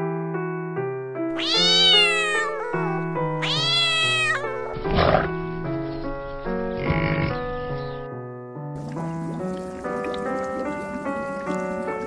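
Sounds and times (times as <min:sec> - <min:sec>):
piano music: 0:00.0 - 0:12.0
cat meowing: 0:01.3 - 0:04.9.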